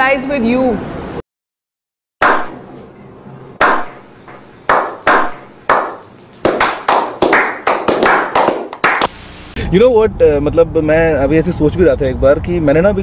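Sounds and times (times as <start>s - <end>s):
slow hand claps: 4.7s - 9.1s.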